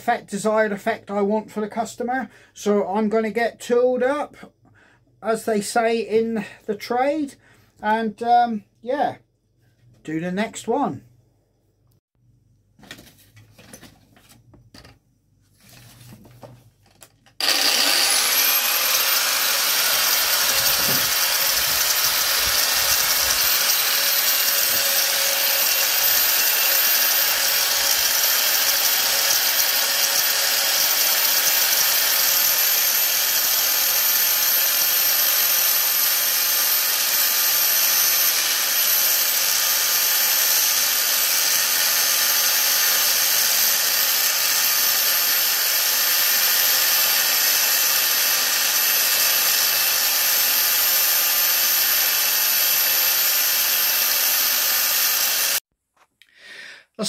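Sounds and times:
angle grinder grinding wood: 17.3s - 55.6s.

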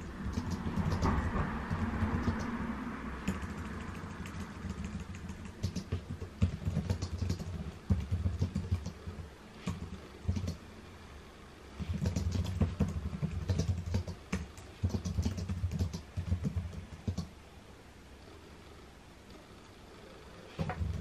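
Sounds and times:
typing on computer keyboard: 0.0s - 2.6s, 3.2s - 10.6s, 11.8s - 17.3s, 20.6s - 21.0s.

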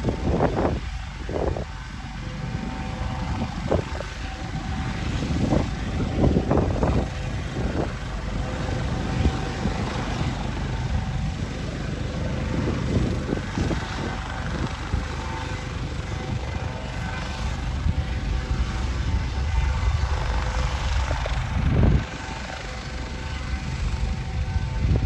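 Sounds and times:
helicopter engines whining: 0.0s - 25.0s
wind buffeting microphone: 0.0s - 25.0s.

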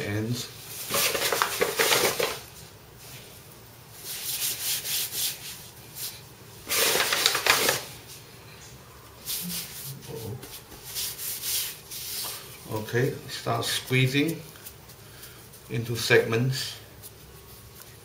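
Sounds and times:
dough rubbing on wooden board: 9.2s - 12.5s.

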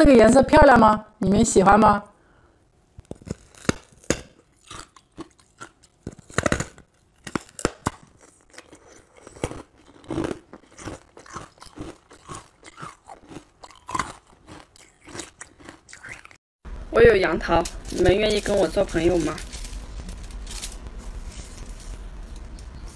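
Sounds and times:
ice cracking as bitten: 3.1s - 16.3s
ice crunching: 17.4s - 22.9s.

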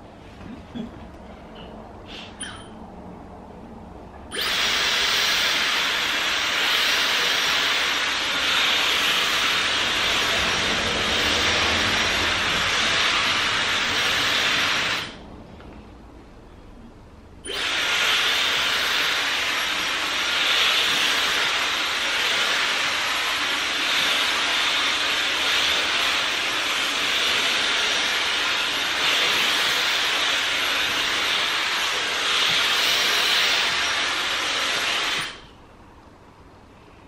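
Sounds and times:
hair dryer blowing: 4.3s - 15.2s, 17.5s - 35.4s.

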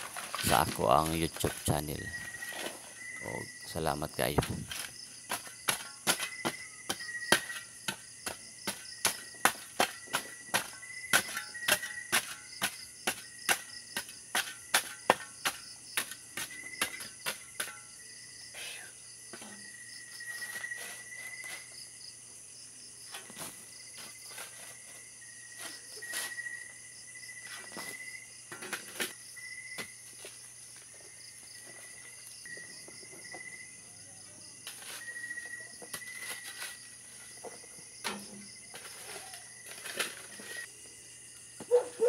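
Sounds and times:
shovel digging into soil and stones: 0.0s - 17.8s, 34.6s - 37.3s
crickets chirping: 0.0s - 42.0s.

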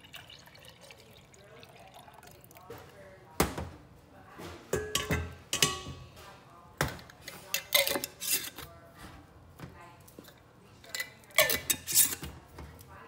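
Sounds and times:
cookware clanking on steel counter: 4.7s - 6.2s, 6.8s - 8.7s, 10.2s - 12.3s.

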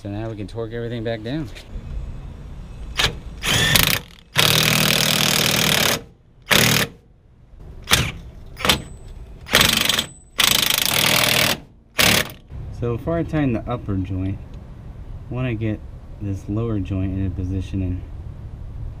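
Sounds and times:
impact wrench hammering: 7.8s - 12.4s.

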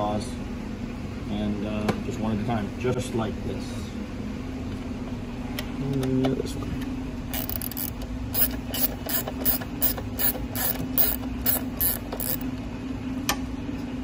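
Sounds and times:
steady low hum: 0.0s - 14.0s
sharp mechanical clicks: 7.3s - 12.4s.

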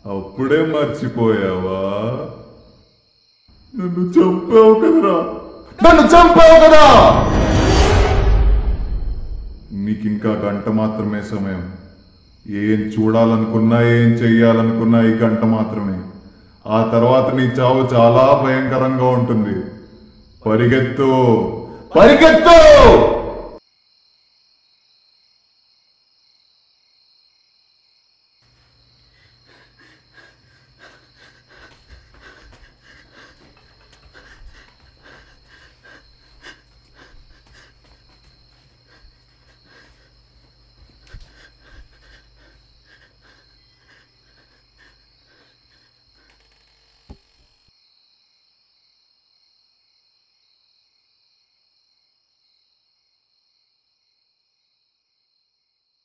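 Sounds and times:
crickets chirping: 0.0s - 56.0s
low hum: 7.0s - 9.8s
running footsteps on a road: 31.6s - 40.0s.

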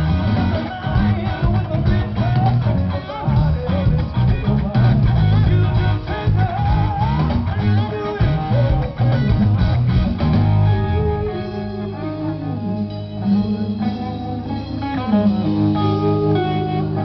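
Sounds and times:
rock band playing live: 0.0s - 17.0s.

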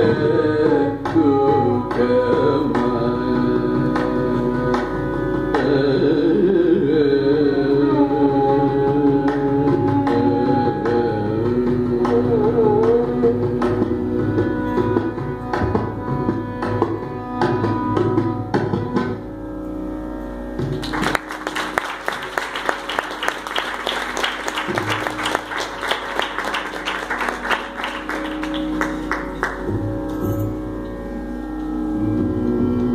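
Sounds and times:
mridangam drum strokes: 8.8s - 19.4s, 20.6s - 30.8s
held melodic notes: 19.6s - 32.9s.

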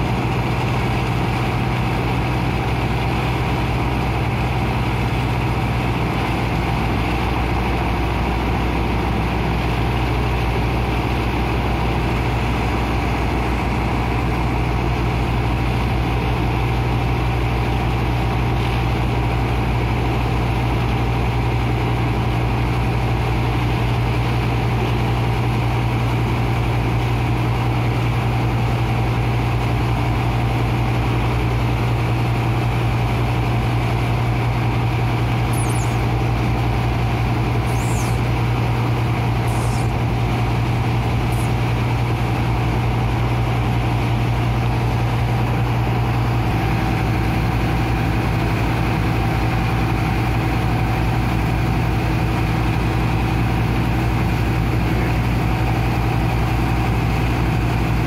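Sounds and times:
water pump engine humming: 0.0s - 58.0s
short high squeaks: 35.5s - 36.2s, 37.5s - 38.3s, 39.4s - 40.1s, 41.2s - 41.6s.

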